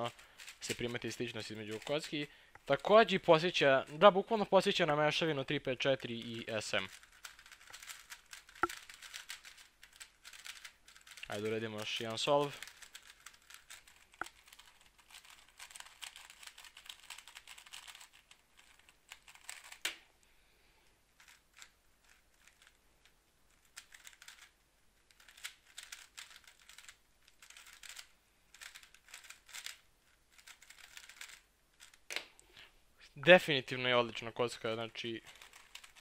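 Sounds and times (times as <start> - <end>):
plastic puzzle cube clicking: 6.8 - 11.3, 12.5 - 20.0, 23.6 - 32.3, 35.2 - 36.0.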